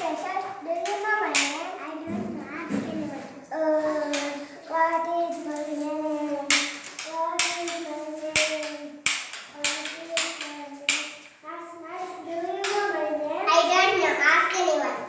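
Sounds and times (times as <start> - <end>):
hands clapping: 6.5 - 11.1.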